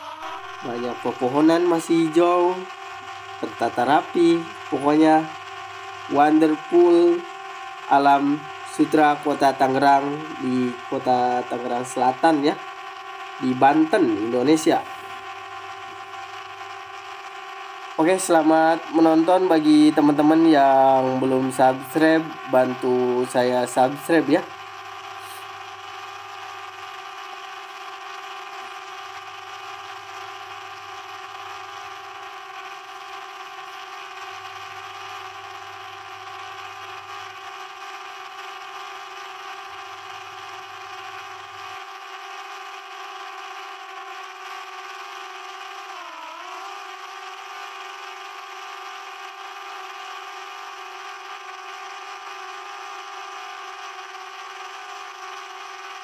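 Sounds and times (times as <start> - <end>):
drone propellers whining: 0.0 - 25.8, 43.7 - 51.6.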